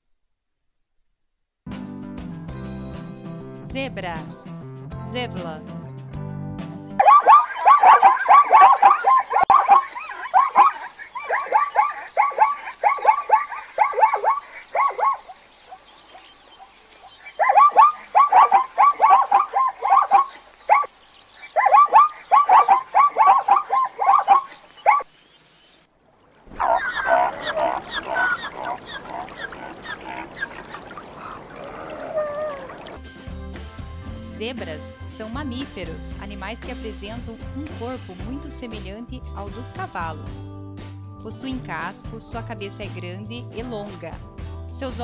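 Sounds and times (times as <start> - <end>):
zebras barking: 7.0 - 25.1, 26.4 - 33.0.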